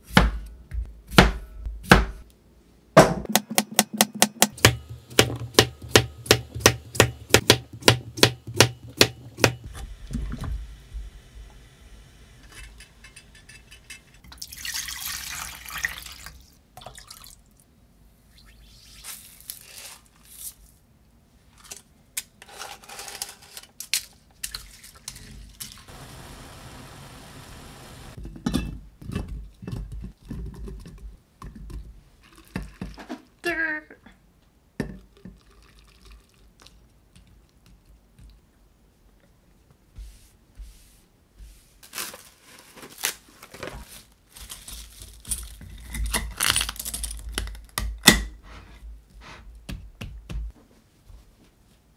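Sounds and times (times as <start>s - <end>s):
knife chopping on wooden board: 1.1s - 2.2s, 3.0s - 9.7s
liquid being poured: 14.2s - 17.5s, 35.2s - 36.8s.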